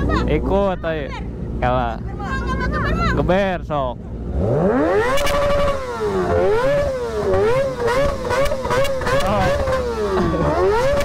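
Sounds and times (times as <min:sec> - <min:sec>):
motorcycle engine revving: 0:04.2 - 0:11.0.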